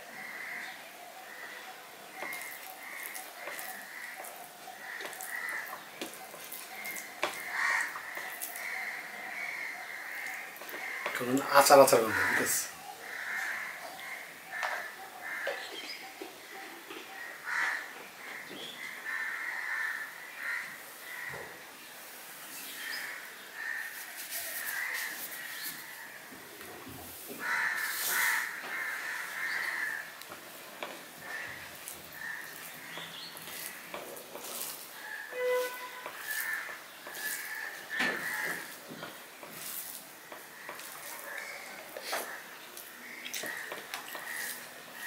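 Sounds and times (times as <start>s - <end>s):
birds calling harshly: 0.0s - 21.6s, 27.4s - 45.0s
fingers mixing rice on steel plate: 2.2s - 9.0s, 27.4s - 35.3s, 36.0s - 45.0s
fingers squishing soft rice: 2.3s - 8.7s.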